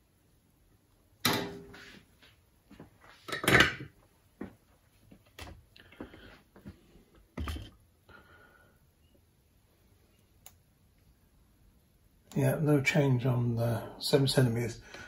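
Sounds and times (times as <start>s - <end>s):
metal parts knocking on wooden table: 7.4s - 7.8s.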